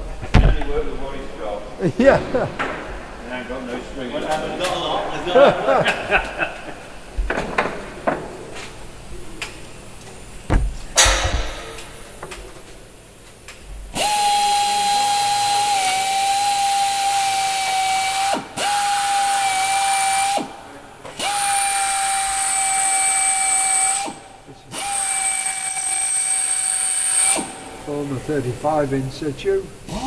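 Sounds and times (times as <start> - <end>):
pneumatic air drill whining: 13.9 - 28.1, 29.8 - 30.0.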